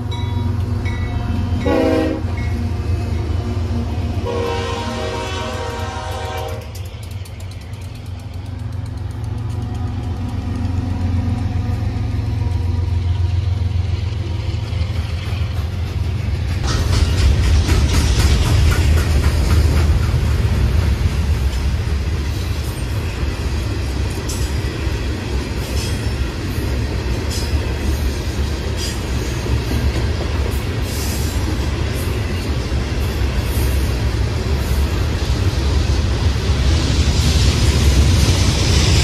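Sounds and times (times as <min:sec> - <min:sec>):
freight train rumbling past: 0:00.0 - 0:39.0
wheels clicking over rail joints: 0:06.1 - 0:11.8.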